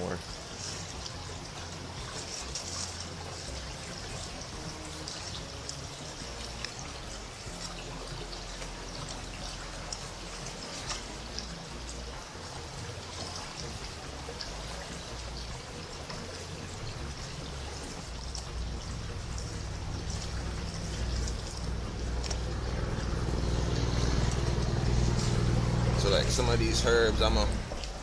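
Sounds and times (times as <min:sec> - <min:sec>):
stream water rushing: 0:00.0 - 0:28.0
low rumble: 0:14.4 - 0:28.0.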